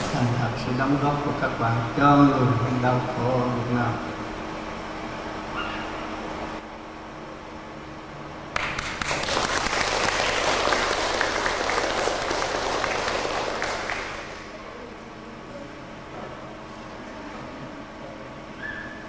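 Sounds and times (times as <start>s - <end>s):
audience applauding: 8.5s - 14.8s.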